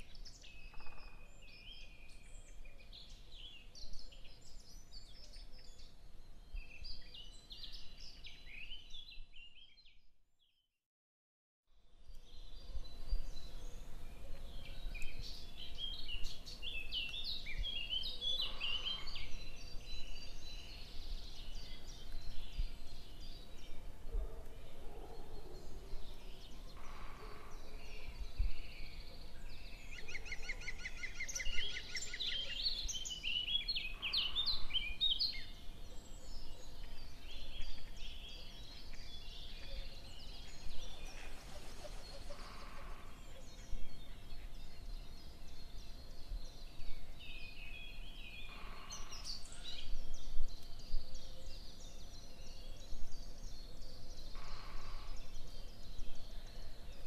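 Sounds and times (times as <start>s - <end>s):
small birds chirping: 12.0s - 57.0s.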